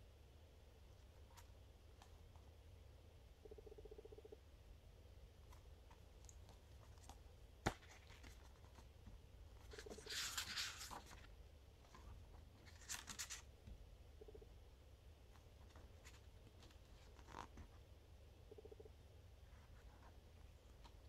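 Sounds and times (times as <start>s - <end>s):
booklet pages flipping: 5.4s - 13.5s, 15.4s - 17.7s
paper riffling: 9.6s - 11.3s.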